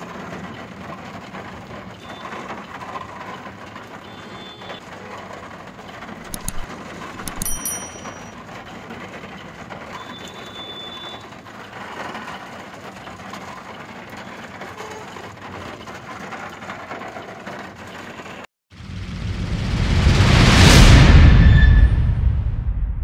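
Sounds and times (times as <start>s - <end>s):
clicks: 6.3s - 8.3s
high thin tone: 6.3s - 8.3s.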